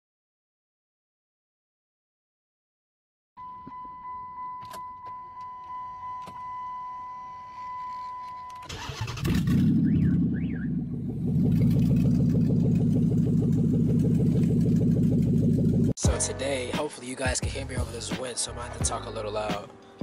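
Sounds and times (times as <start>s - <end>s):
car engine running: 8.9s - 16.0s.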